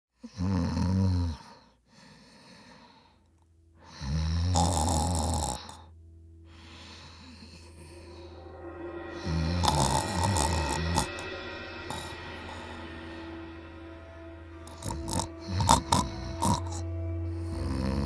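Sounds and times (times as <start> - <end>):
person snoring: 0.2 - 1.6, 3.8 - 5.9, 9.2 - 11.2, 14.2 - 18.0
soft breathing: 1.5 - 4.1, 5.8 - 9.1.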